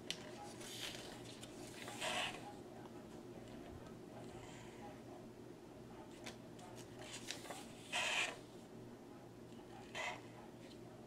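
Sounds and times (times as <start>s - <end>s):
paper page turning: 0.1s - 2.0s, 6.2s - 7.6s.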